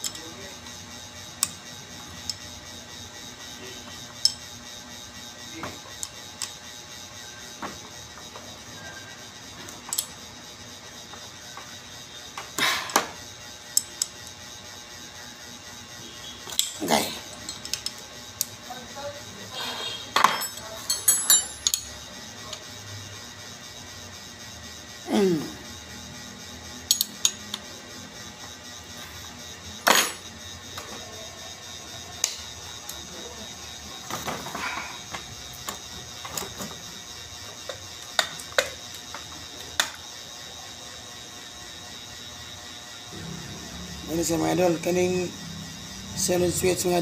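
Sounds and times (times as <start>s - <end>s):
wrench clinking on metal: 0.0s - 0.3s, 20.2s - 22.0s, 26.9s - 27.6s
metal parts clicking and scraping: 20.2s - 21.9s.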